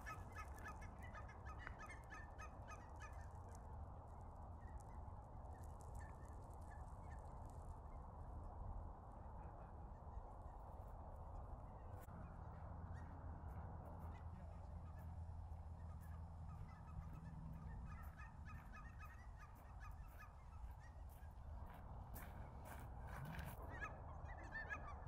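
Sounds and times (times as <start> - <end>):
geese cackling: 15.8 - 21.2, 22.7 - 25.0.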